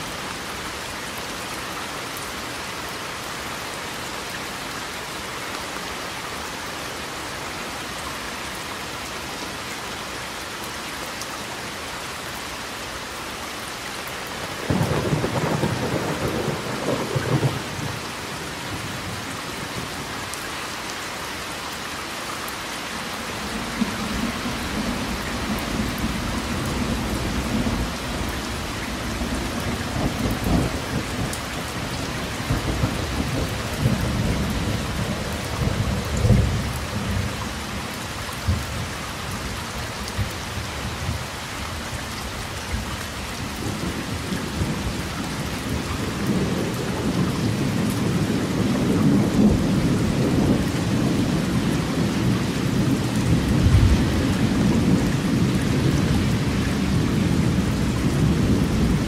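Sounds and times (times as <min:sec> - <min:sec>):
heavy rain falling: 0:00.0 - 0:59.0
low rumble of thunder: 0:14.6 - 0:20.0, 0:23.5 - 0:37.4, 0:43.5 - 0:59.0.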